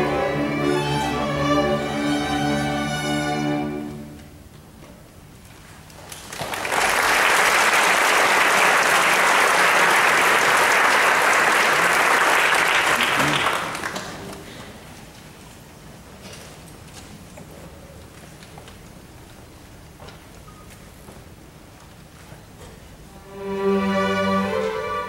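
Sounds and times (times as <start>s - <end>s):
audience applauding: 6.1s - 14.5s.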